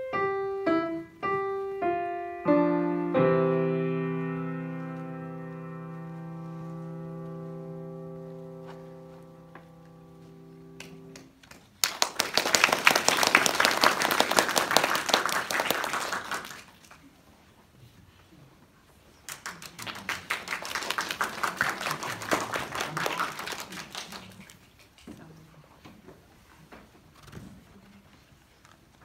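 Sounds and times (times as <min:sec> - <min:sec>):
piano chord: 0:00.0 - 0:11.2
audience applause: 0:10.8 - 0:17.0, 0:19.3 - 0:24.6.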